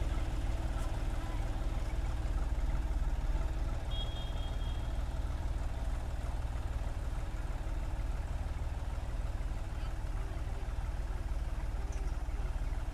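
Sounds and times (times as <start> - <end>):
tractor diesel engine rumbling: 0.0 - 12.9.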